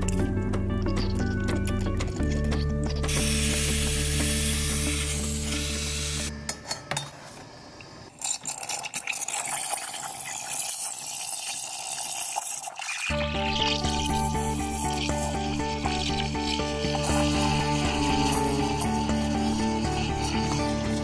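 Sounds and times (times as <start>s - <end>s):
steam wand hissing: 3.1s - 6.3s, 16.7s - 21.0s.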